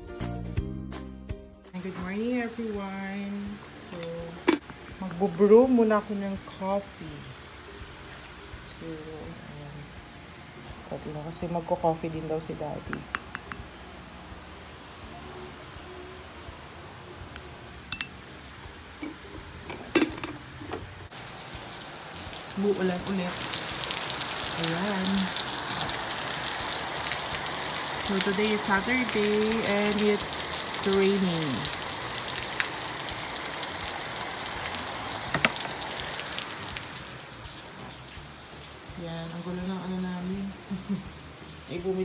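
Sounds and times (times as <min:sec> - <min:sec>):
mugs and spoon clinking: 0:17.9 - 0:18.2, 0:19.0 - 0:20.8
rain hissing: 0:20.8 - 0:42.0
sharp drips: 0:21.1 - 0:42.0.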